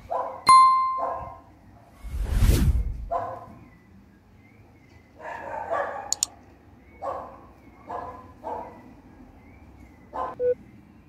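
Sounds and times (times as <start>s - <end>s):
dog barking: 0.0s - 1.5s, 3.1s - 3.6s, 5.2s - 6.3s, 7.0s - 8.9s, 10.1s - 10.4s
sharp clicks: 6.1s - 6.3s.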